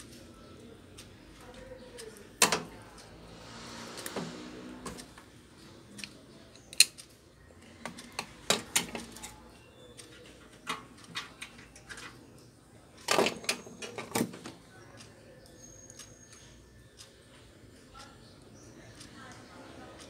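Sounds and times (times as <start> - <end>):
sharp clicks: 5.9 - 17.1.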